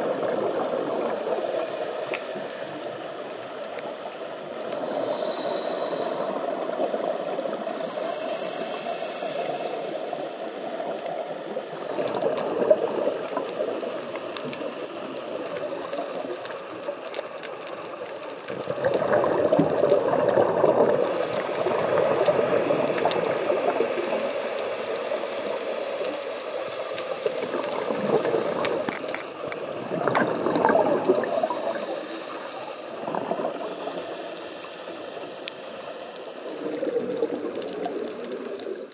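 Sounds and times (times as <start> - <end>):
underwater rushing: 0.0 - 38.9
diver's exhaled bubbles: 18.5 - 24.0, 27.3 - 32.1, 33.0 - 34.0.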